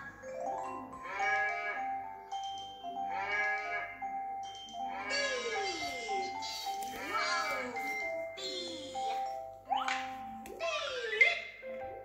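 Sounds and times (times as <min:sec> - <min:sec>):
tinkly children's melody: 0:00.0 - 0:12.0
cartoon cow mooing: 0:01.0 - 0:01.9, 0:03.1 - 0:04.0.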